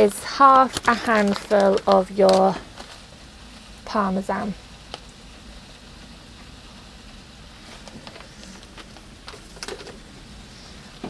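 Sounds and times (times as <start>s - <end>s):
pasta sizzling in a frying pan: 0.0s - 11.0s
plastic packet crinkling: 0.5s - 3.1s.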